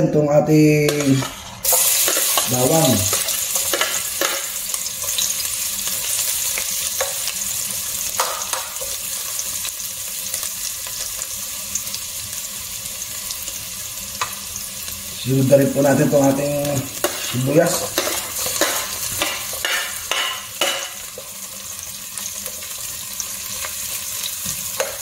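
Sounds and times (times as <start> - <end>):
garlic sizzling in hot oil: 0.6 - 25.0.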